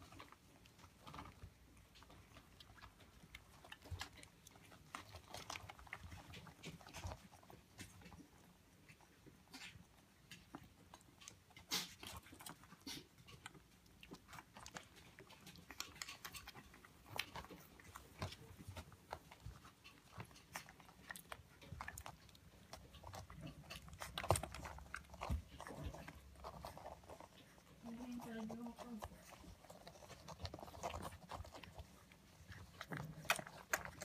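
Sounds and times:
puppies suckling clicks and smacks: 0.0 - 34.0.

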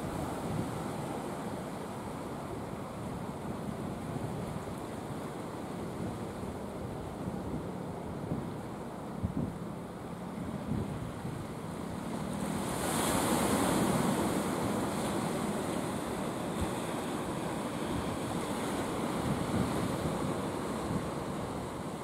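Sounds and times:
waves washing: 0.0 - 22.0.

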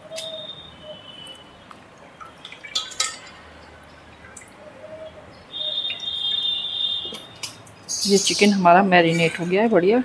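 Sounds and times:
marinade dripping and squelching: 0.0 - 10.0
dish clinking: 2.8 - 3.4.

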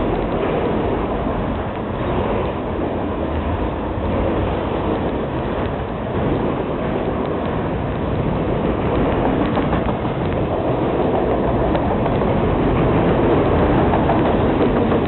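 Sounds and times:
train wheels rumbling on rails: 0.0 - 15.0
faint clicks: 8.9 - 10.5, 11.2 - 12.3.

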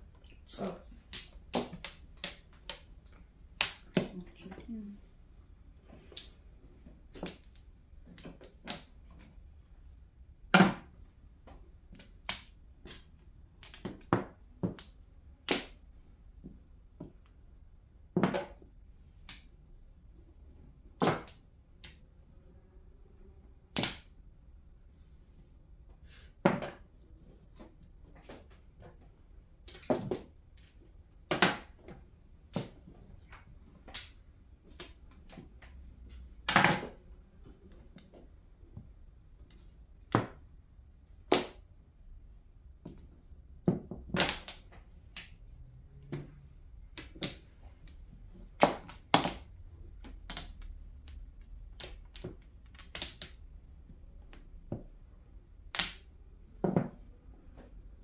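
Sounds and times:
mahjong tiles clacking: 1.0 - 4.1.

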